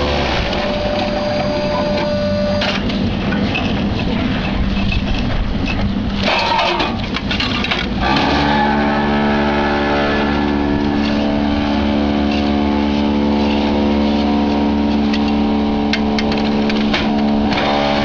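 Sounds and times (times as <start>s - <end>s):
block-moulding machine humming: 0.0s - 18.0s
machine clatter: 1.8s - 8.3s, 10.8s - 18.0s.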